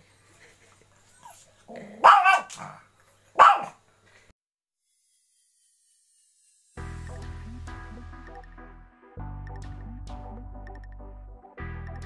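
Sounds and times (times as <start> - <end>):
small dog barking: 1.7 - 3.8.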